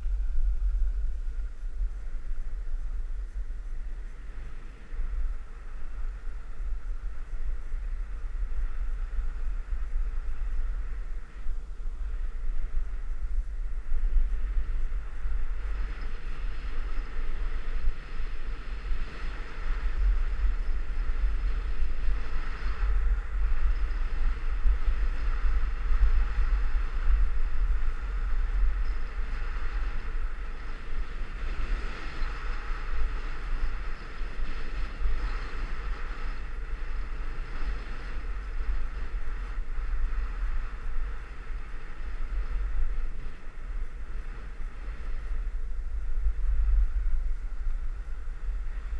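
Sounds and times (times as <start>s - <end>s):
wind buffeting microphone: 0.0s - 48.9s.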